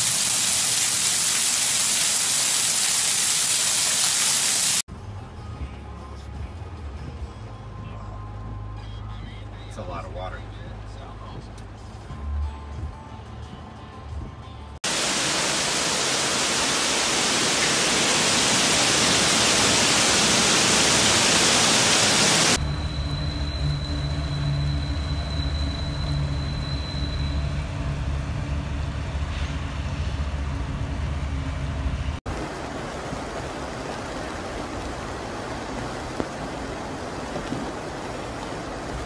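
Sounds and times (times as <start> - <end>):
floodwater rushing: 0.0 - 4.8, 14.8 - 22.6, 32.3 - 39.0.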